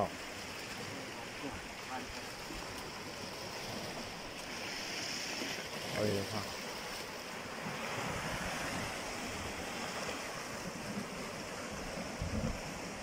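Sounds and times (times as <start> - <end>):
waves breaking on rocks: 0.0 - 13.0.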